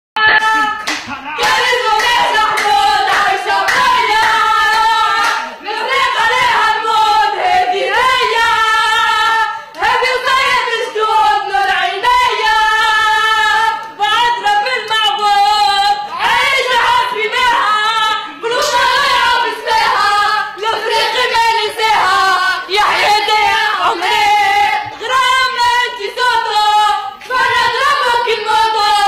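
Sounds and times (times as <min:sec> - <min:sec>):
crowd chanting: 0:00.2 - 0:29.0
hand claps: 0:00.4 - 0:05.6.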